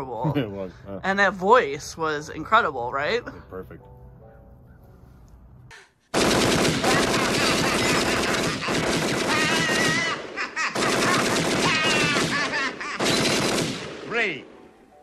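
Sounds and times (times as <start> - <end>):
machine gun firing bursts: 6.1 - 14.2
man shouting: 9.2 - 10.2.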